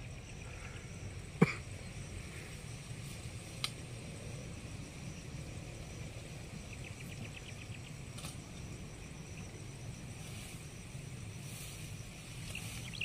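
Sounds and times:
steady low rumble: 0.0s - 13.0s
high ticks: 3.4s - 3.9s.

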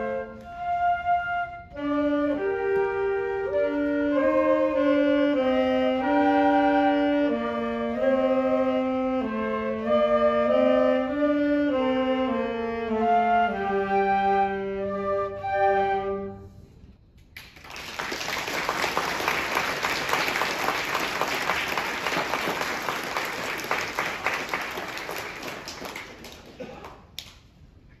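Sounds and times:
woodwind ensemble chord: 0.0s - 16.9s
audience applause: 17.4s - 27.3s.

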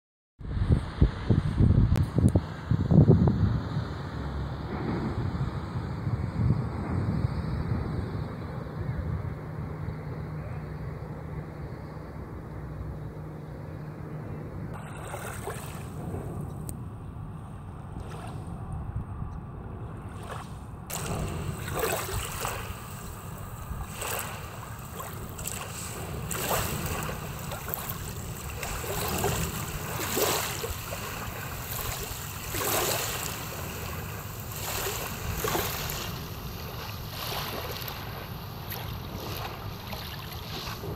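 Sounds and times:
steady low rumble: 0.4s - 40.9s
waves washing onto pebbly shore: 20.9s - 40.9s.

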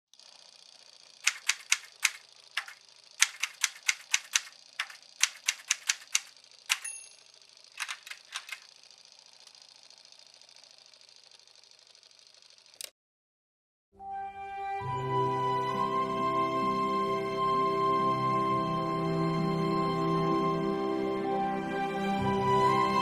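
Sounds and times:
typewriter keys striking: 1.2s - 7.2s, 7.8s - 8.7s
typewriter bell ding: 6.7s - 7.3s.

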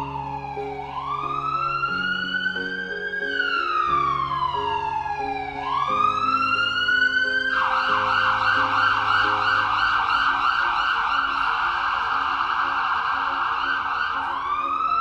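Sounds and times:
background music: 0.0s - 15.0s
emergency siren wailing: 0.0s - 15.0s.

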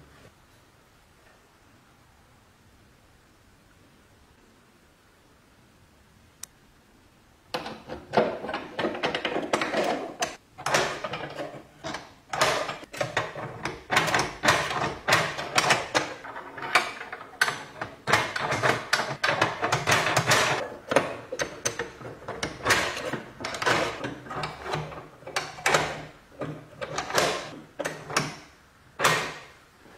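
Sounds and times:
door lock bolt clicking and scraping: 7.5s - 29.5s.

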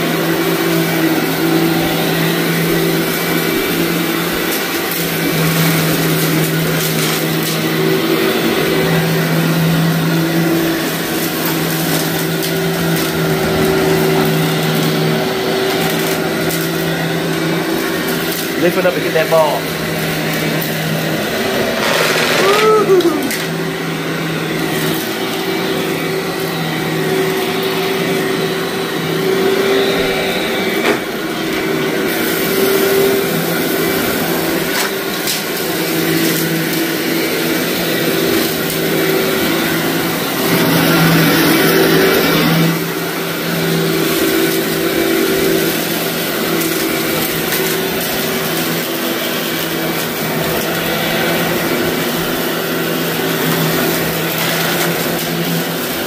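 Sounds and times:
vacuum cleaner running: 0.0s - 56.0s.

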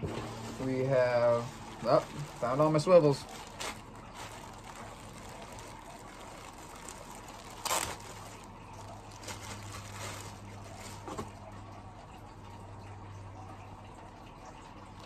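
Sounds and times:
plastic bag rustling and crinkling: 0.0s - 11.6s
faint low hum: 0.0s - 15.0s.

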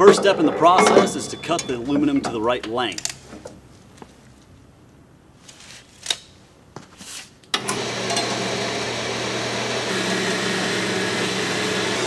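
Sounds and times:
band saw cutting metal: 7.6s - 12.0s.

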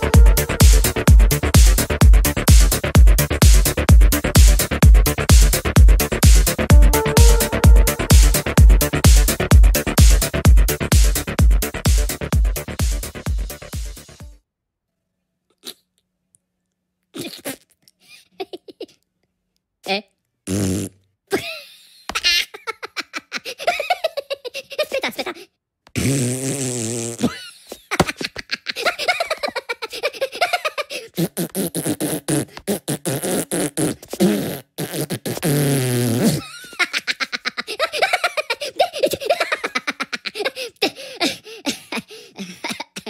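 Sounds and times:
high-pitched giggling: 18.3s - 19.0s, 22.3s - 25.4s, 27.8s - 31.1s, 36.4s - 43.0s
cartoon fart noises: 20.5s - 21.0s, 26.0s - 27.4s, 31.2s - 36.5s.

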